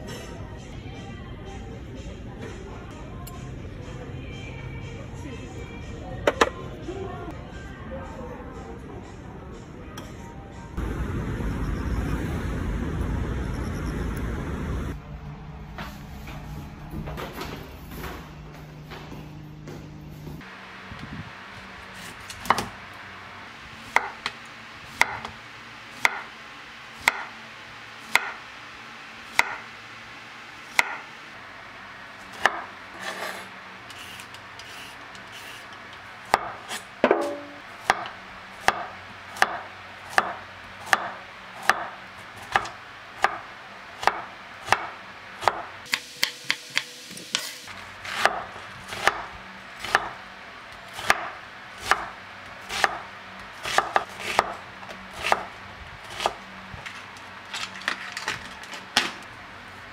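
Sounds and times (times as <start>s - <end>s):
knife chopping on wooden board: 48.0s - 49.2s, 52.7s - 53.0s, 53.6s - 54.6s.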